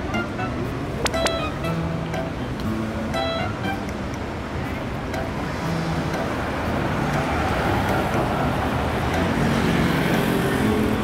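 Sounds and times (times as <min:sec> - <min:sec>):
car passing: 0:05.3 - 0:11.0.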